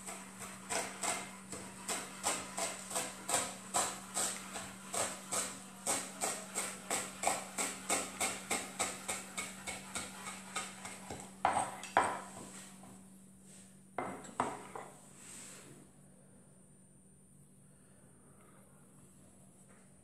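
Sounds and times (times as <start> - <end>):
knife chopping on wooden board: 0.0 - 12.4.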